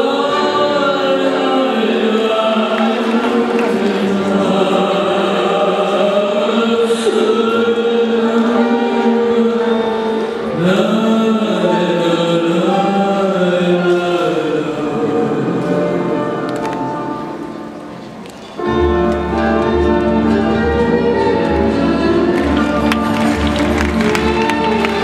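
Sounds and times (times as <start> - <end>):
choral chanting over loudspeakers: 0.0 - 18.0.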